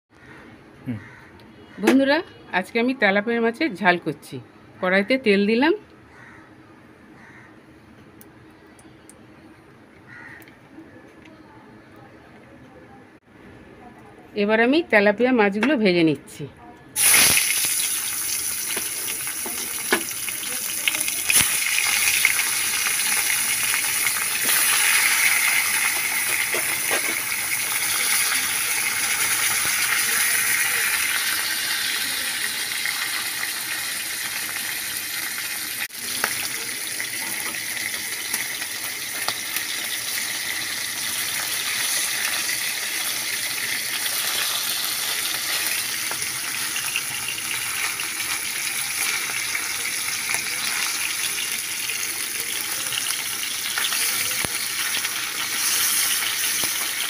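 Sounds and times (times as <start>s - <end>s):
fish sizzling in hot oil: 17.0s - 57.0s.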